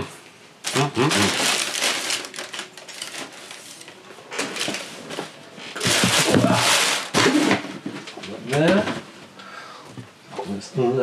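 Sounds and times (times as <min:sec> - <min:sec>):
cardboard box rustling: 0:01.2 - 0:03.7.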